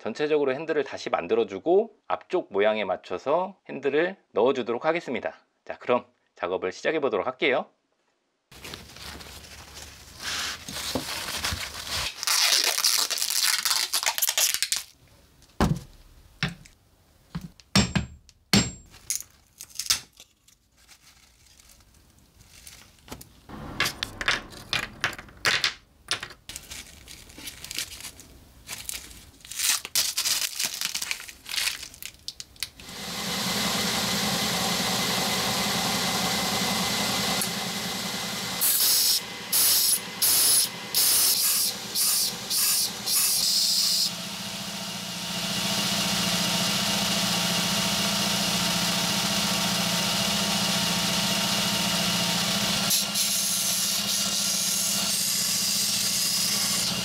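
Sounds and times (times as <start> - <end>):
paper towel rustling: 8.5 - 12.4
belt grinder humming: 32.8 - 57.0.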